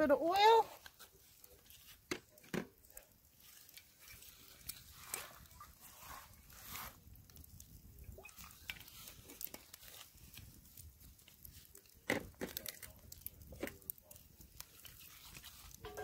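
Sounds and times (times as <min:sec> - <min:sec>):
campfire crackling and popping: 0:00.0 - 0:16.0.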